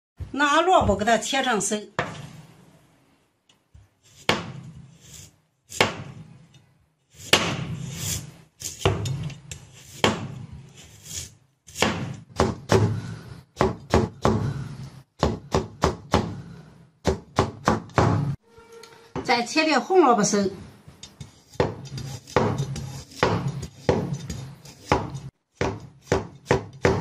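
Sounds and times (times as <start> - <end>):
knife slicing radish: 7.1 - 12.2, 21.2 - 27.0.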